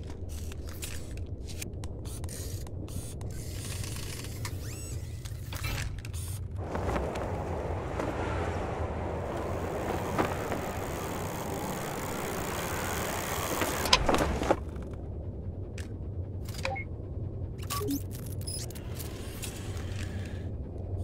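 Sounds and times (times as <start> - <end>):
dull low rumble: 6.4 - 21.0
rushing wind: 6.5 - 21.0.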